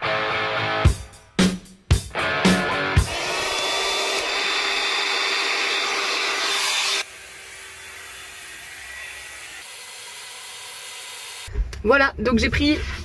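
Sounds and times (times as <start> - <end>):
hair dryer running: 3.0 - 11.5.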